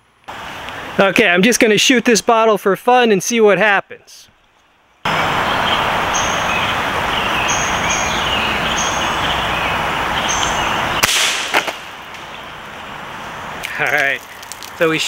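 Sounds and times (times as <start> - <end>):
bird chirps: 5.1 - 11.1.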